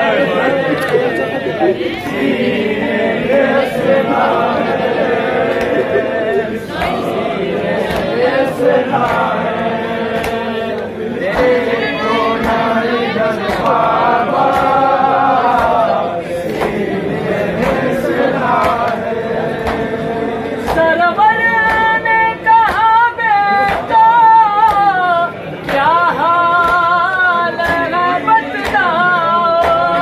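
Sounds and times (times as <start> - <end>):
men singing a lament together: 0.0 - 30.0
hands slapping chests: 5.4 - 5.9, 6.7 - 7.1, 7.8 - 8.2, 12.4 - 12.6, 13.4 - 13.8, 14.4 - 14.8, 16.5 - 17.9, 19.6 - 19.9, 20.6 - 20.9.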